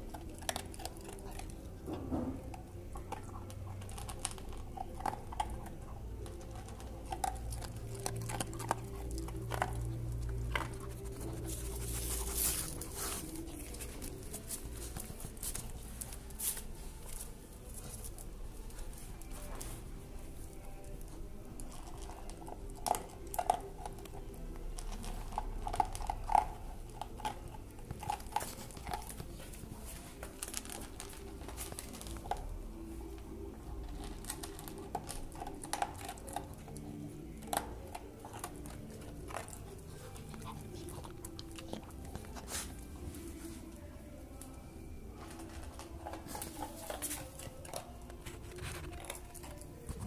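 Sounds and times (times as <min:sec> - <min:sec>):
dog chewing and crunching food: 0:00.0 - 0:50.0.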